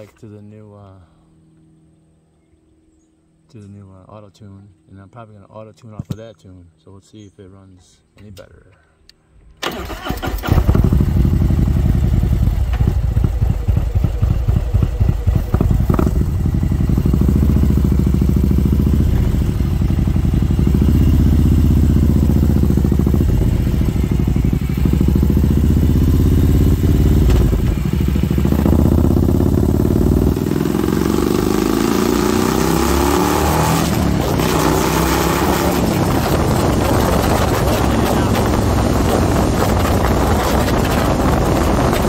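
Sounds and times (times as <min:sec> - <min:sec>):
motorcycle engine running loud: 0:10.4 - 0:42.0.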